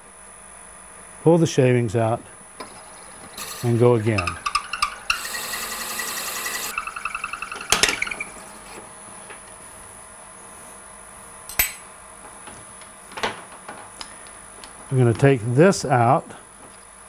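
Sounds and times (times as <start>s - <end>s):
faint steady hum: 0.0s - 17.0s
pulsing squeal of drill bit: 2.9s - 8.8s
drill bit boring into wood: 3.2s - 8.4s.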